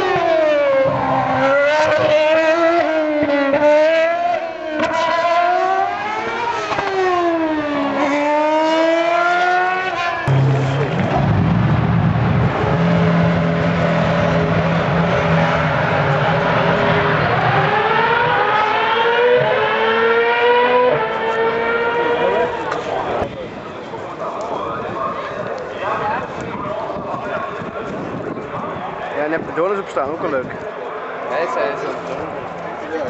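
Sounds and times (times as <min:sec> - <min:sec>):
race car engine revving: 0:00.0 - 0:23.3.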